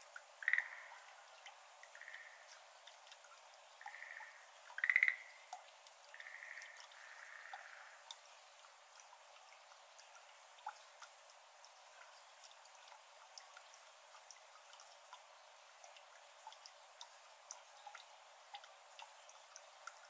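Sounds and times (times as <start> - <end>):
water drops into shallow water: 0.0 - 20.0
tree frogs trilling: 0.4 - 1.3, 1.9 - 2.6, 3.8 - 8.1.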